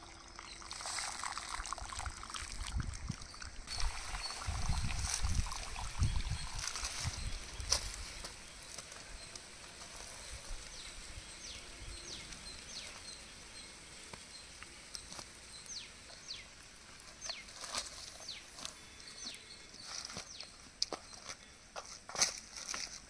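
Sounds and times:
bird chirps: 3.2s - 9.4s, 17.1s - 21.6s.

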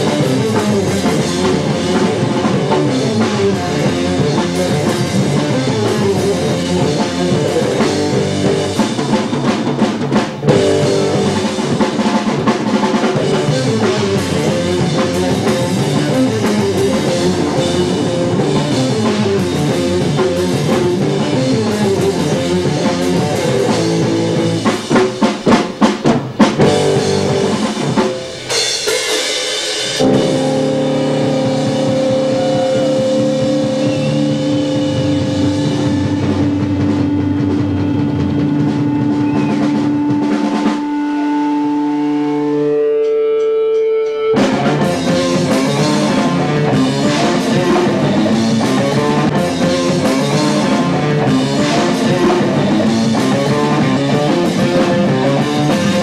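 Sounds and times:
guitar and bass ringing notes: 0.0s - 9.6s, 10.4s - 12.2s, 12.9s - 24.9s, 26.6s - 28.9s, 29.8s - 56.0s
drum hits: 0.0s - 40.9s
rock band playing: 0.0s - 56.0s.

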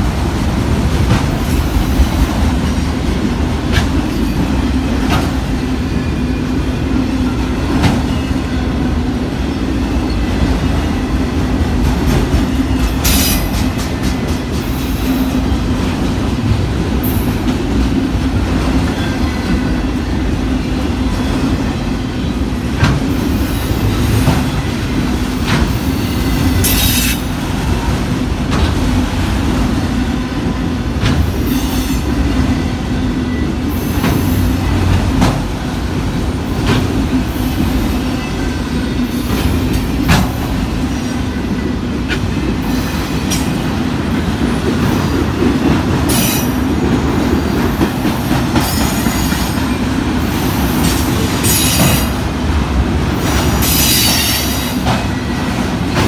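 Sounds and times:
freight train rumbling past: 0.0s - 56.0s.

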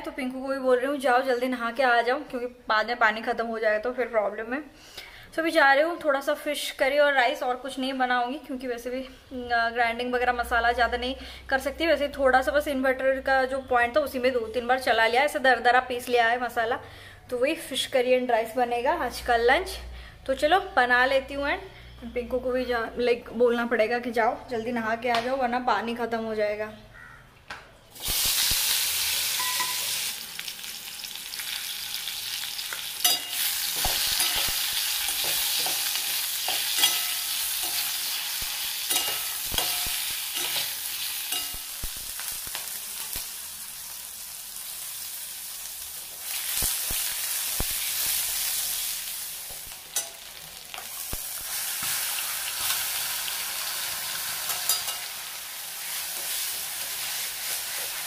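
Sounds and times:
food sizzling in hot oil: 27.9s - 58.0s.

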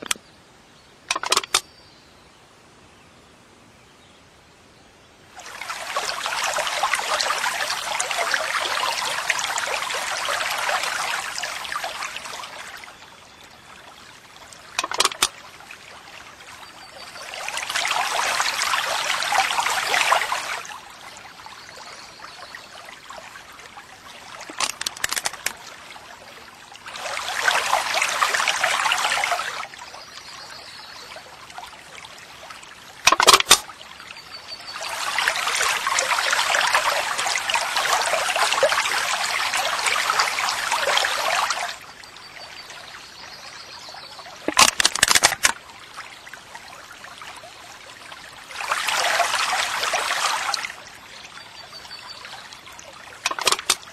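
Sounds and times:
short sharp clicks: 1.1s - 1.6s
water trickling: 5.3s - 53.9s.

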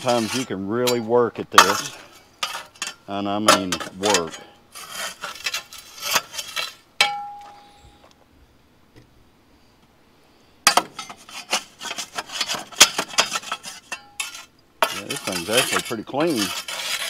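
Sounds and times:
metal tool scraping and clinking: 0.0s - 7.8s, 10.7s - 17.0s
sharp ringing metal knock: 7.0s - 7.6s.

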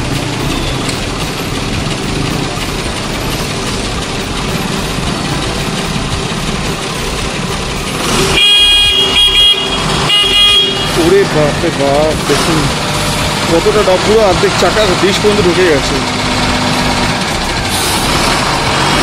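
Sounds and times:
motorcycle engines running: 0.0s - 19.0s
vehicle horn honking: 8.1s - 11.9s.

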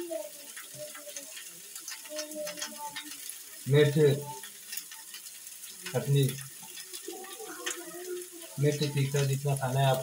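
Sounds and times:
vegetables frying with low sizzle: 0.0s - 10.0s
man's voice: 3.7s - 4.4s, 5.9s - 6.4s, 8.6s - 10.0s.

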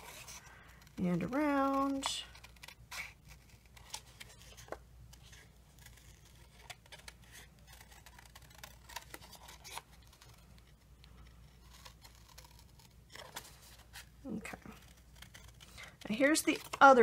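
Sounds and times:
scissors snipping cardstock: 0.0s - 10.3s.

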